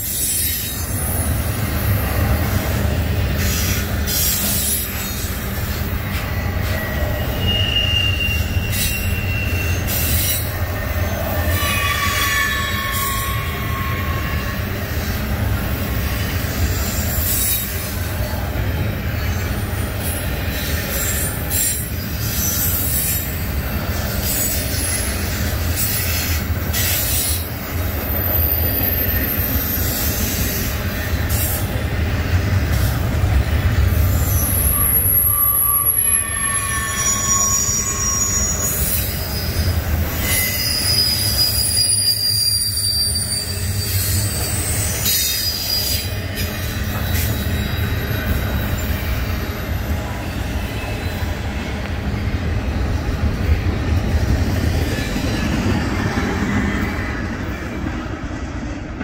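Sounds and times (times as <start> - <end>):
steel wheels rumbling on rail: 0.0 - 59.0
train clanks: 0.0 - 59.0
high-pitched wheel squeals: 6.2 - 15.2, 34.1 - 51.7.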